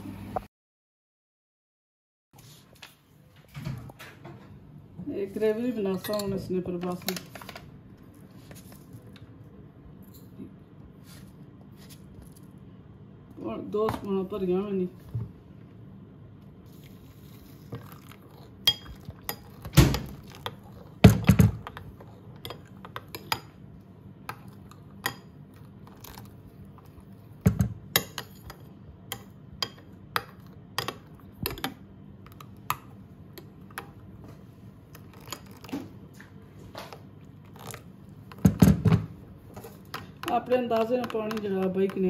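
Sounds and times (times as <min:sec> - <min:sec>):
metal spoon clinking in ceramic bowl: 0:06.0 - 0:06.4, 0:18.6 - 0:19.4.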